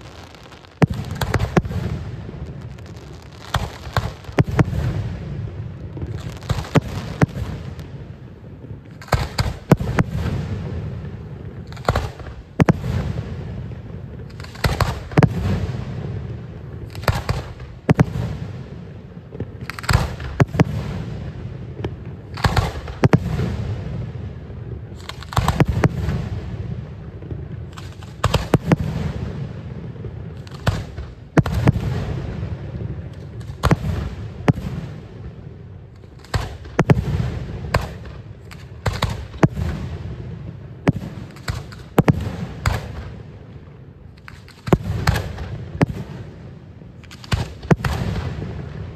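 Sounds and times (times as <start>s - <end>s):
firework shells bursting: 0.0s - 4.7s.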